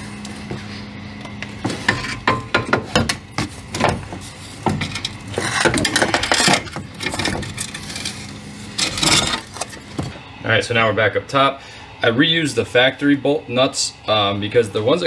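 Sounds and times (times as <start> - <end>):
metal knocks and clatter: 1.4 - 10.2
metal scraping: 3.3 - 10.2.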